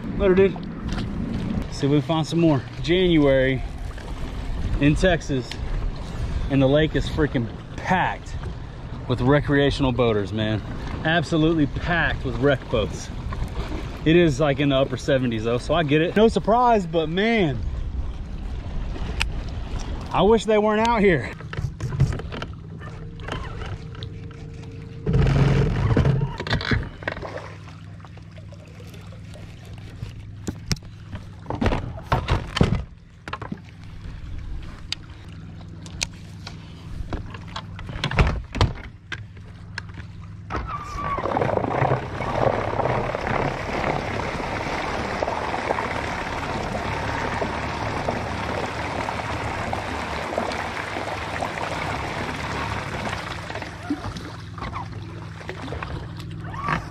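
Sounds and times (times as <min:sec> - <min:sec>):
churning water rushing: 0:00.0 - 0:56.9
knocks against boat: 0:30.5 - 0:33.6, 0:37.1 - 0:39.0.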